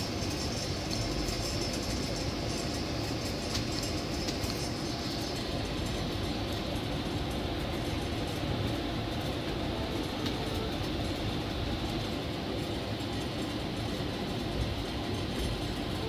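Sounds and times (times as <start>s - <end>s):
train rumbling: 0.0s - 16.0s.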